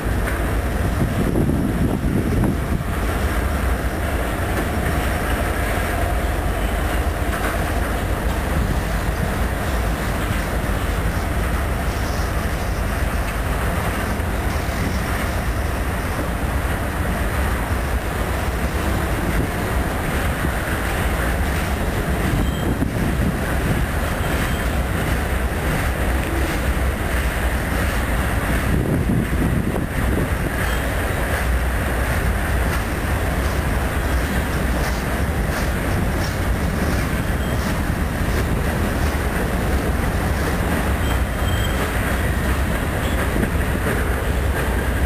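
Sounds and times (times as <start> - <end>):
freight train wheels rumbling: 0.0 - 45.0.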